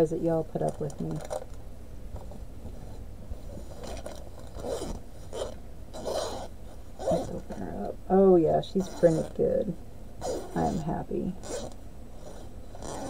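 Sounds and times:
fabric rustling: 2.1s - 8.0s.

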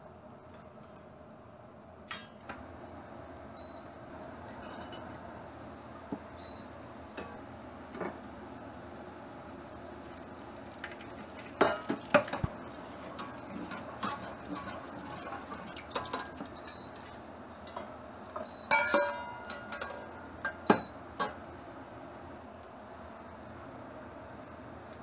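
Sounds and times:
oil swirling in a wok: 9.6s - 20.2s.

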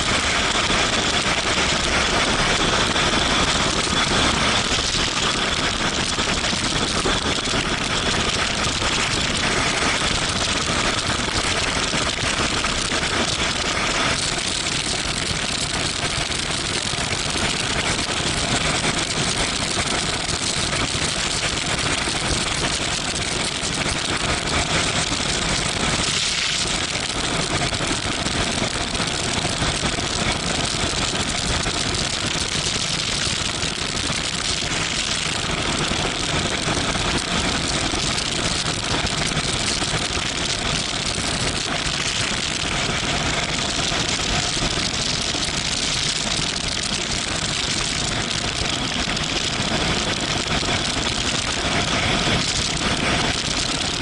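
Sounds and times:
wind rushing over camera: 0.0s - 54.0s.

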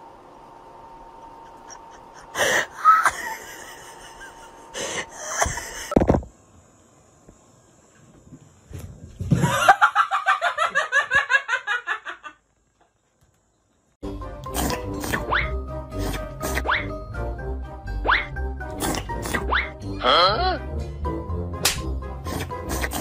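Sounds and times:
person laughing hard: 1.4s - 6.0s.

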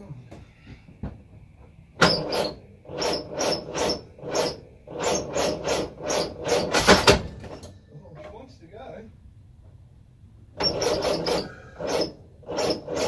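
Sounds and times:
engine cranking slowly: 10.6s - 13.0s.

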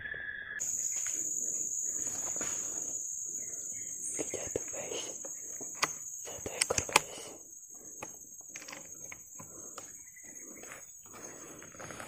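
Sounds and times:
insects buzzing: 0.1s - 12.0s
sharp clicks: 4.6s - 9.9s.

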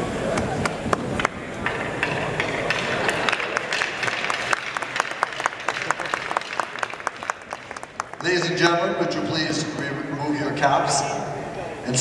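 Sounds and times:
crowd applauding: 0.3s - 1.4s, 2.4s - 9.0s.

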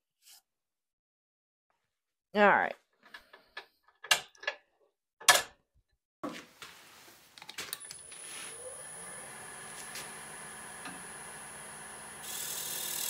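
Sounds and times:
wood lathe motor whining: 7.9s - 13.0s.

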